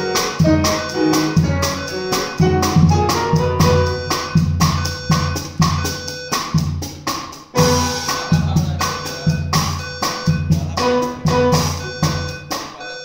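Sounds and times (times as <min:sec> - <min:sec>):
piano: 0:00.0 - 0:05.9, 0:07.5 - 0:09.4, 0:10.2 - 0:12.5
fire alarm tone: 0:00.0 - 0:06.8, 0:07.6 - 0:13.0
drum kit with crashing cymbals: 0:00.0 - 0:13.0.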